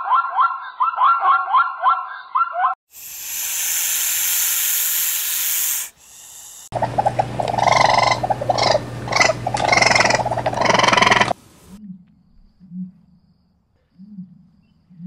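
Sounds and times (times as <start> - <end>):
snake hissing: 2.9 - 11.8
steady low hum: 3.1 - 11.8
hedgehog calls: 6.7 - 11.8
zebra call: 6.8 - 11.4.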